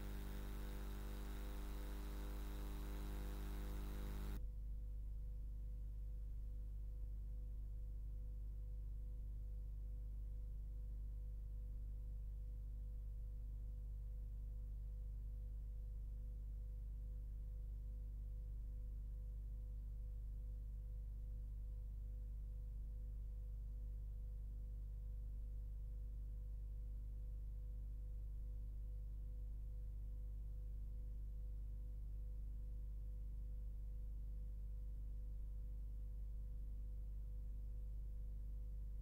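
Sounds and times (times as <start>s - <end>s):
faint pulsing high tones: 0.0s - 4.4s
low electrical hum: 0.0s - 39.0s.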